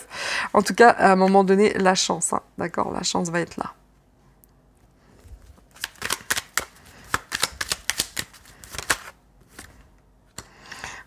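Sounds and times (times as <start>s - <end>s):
cards being shuffled: 5.2s - 9.9s.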